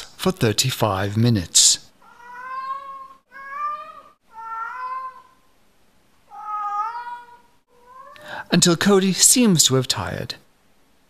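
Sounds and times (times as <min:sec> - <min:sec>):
cat meowing: 0:02.0 - 0:05.5, 0:06.3 - 0:08.4.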